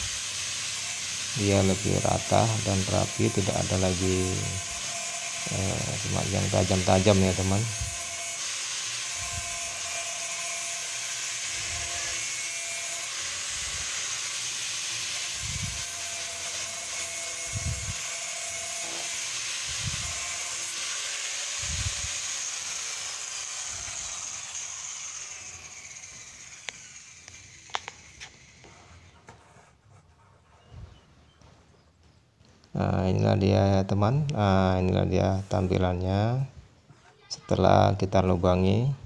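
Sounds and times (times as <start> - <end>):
grinder winding down: 0.0 - 29.2
angle grinder whining on plastic: 0.0 - 29.5.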